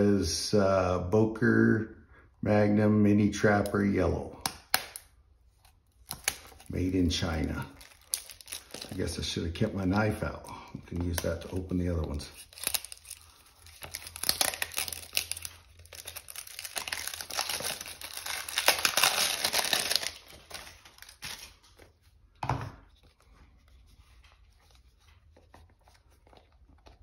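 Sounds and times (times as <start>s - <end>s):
plastic packaging crinkling and tearing: 4.6s - 10.1s, 10.8s - 21.9s.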